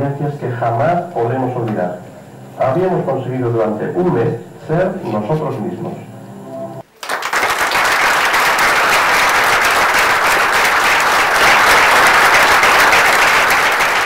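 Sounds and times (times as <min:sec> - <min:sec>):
audience applauding: 0:06.9 - 0:14.0.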